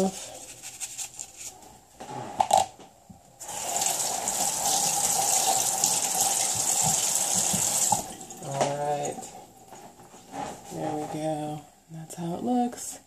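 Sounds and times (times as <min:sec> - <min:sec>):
water running into steel sink: 0:03.4 - 0:09.2.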